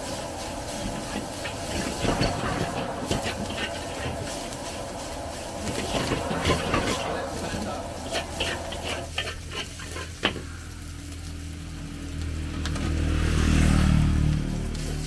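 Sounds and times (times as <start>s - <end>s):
metal spatula scraping wok: 0.0s - 10.6s
low rumble: 0.0s - 15.0s
rice sizzling: 0.0s - 15.0s.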